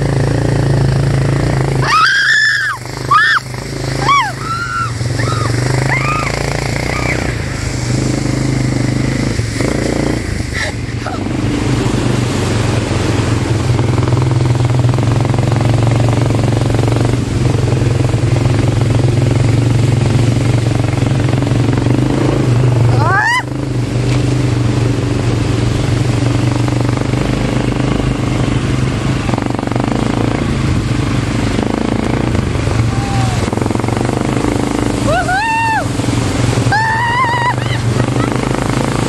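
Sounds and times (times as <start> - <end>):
quad bike engine running: 0.0 - 39.0
rising squeal: 1.8 - 7.5.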